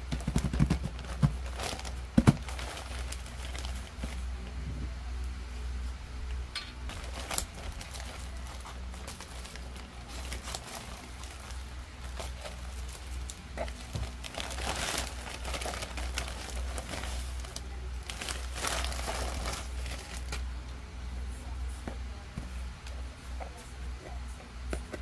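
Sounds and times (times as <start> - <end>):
low steady hum: 0.0 - 25.0
plastic bag crinkling: 0.2 - 4.3, 6.9 - 20.4.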